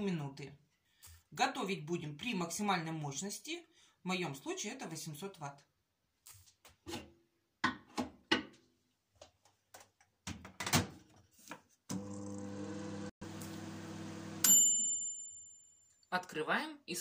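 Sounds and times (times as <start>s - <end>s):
microwave humming: 11.9s - 14.5s
microwave bell ding: 14.4s - 15.8s.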